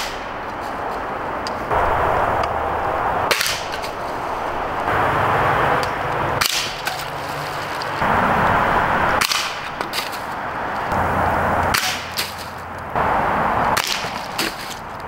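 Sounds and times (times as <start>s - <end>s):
hissing noise: 1.1s - 11.2s.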